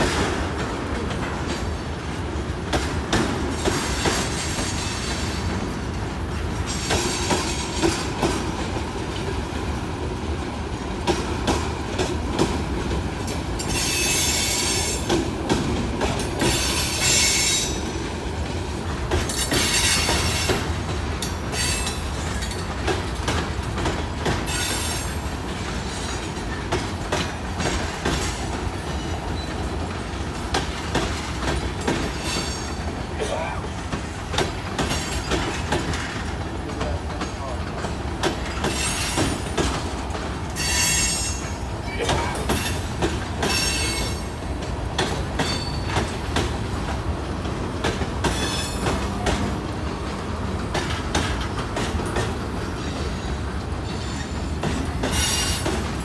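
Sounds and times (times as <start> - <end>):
freight train rumbling: 0.0 - 56.0
wheels clacking over rail joints: 0.0 - 56.0.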